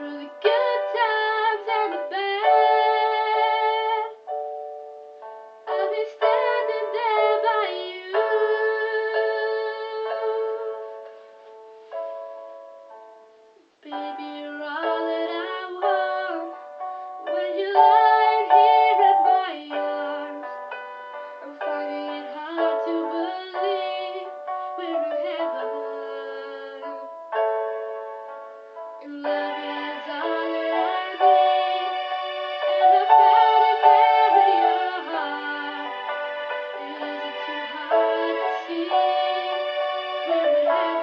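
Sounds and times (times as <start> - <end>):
woman singing pop ballad: 13.8 - 16.6, 17.3 - 20.6, 21.4 - 27.0, 29.1 - 31.5.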